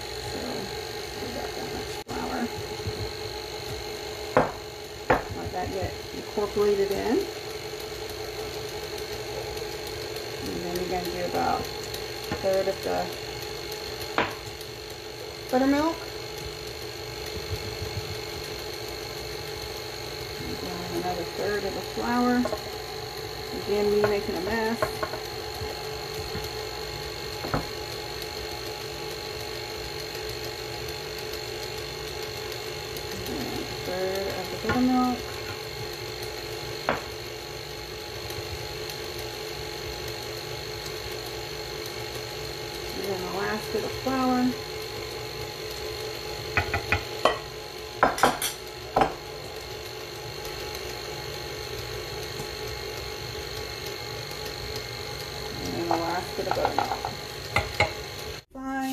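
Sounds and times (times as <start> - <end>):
stand mixer motor humming: 0.0 - 58.5
glass dishes clinking on countertop: 48.0 - 49.2.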